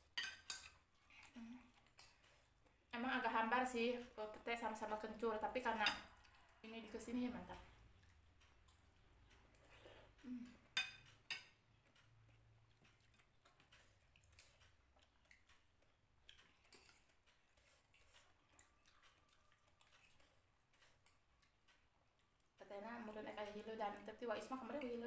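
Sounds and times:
spoons tapping on plates: 0.0s - 0.8s, 10.7s - 11.6s.

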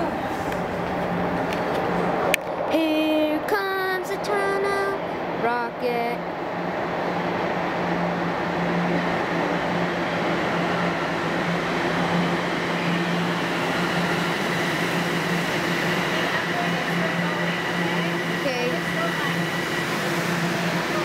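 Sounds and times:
subway train rumbling into station: 0.0s - 21.0s.

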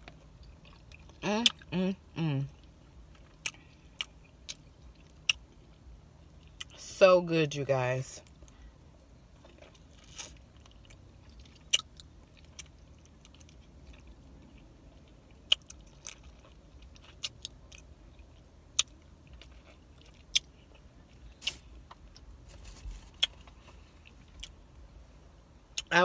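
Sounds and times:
low steady hum: 0.0s - 26.0s
chewing and biting food: 9.4s - 24.6s.

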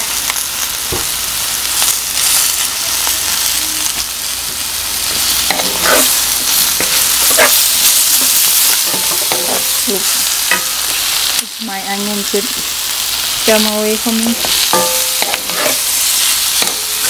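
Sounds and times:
food sizzling in hot oil: 0.0s - 17.0s
stirring scrapes: 14.7s - 16.3s.

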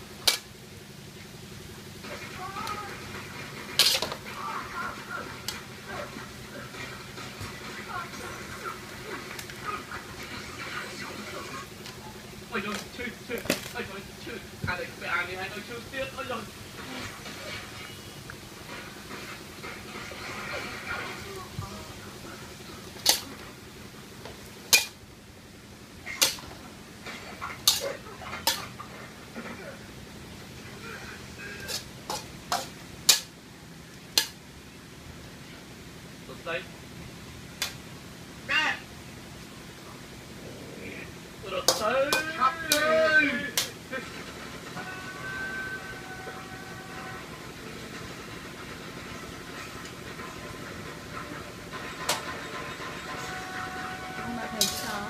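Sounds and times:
stove hum and hiss: 0.0s - 55.0s
metal spatula scraping a wok: 3.2s - 4.3s, 22.9s - 23.4s, 24.7s - 25.0s, 26.2s - 29.0s, 31.0s - 33.3s, 51.8s - 55.0s.

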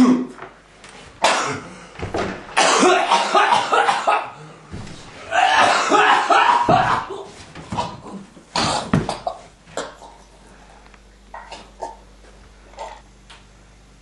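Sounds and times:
person coughing: 0.0s - 0.4s, 1.2s - 1.8s, 2.6s - 4.4s, 5.3s - 10.2s.

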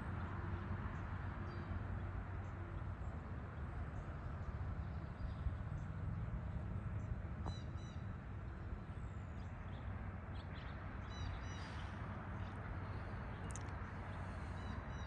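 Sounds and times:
birds calling: 7.4s - 15.0s.

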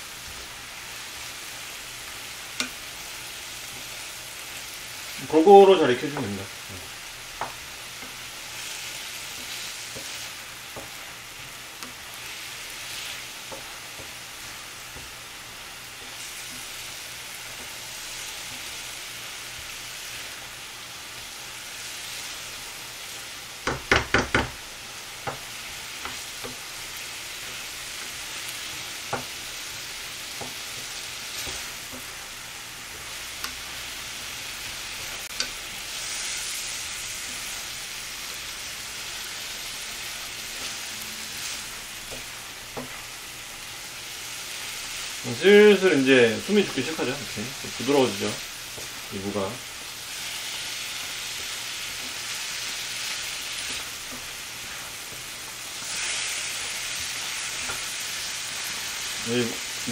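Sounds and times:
radish sizzling in a frying pan: 0.0s - 59.9s
wooden spatula knocking a pan: 7.4s - 8.2s, 10.7s - 12.0s, 23.6s - 24.6s, 25.2s - 26.6s, 28.8s - 29.4s, 42.1s - 43.0s.

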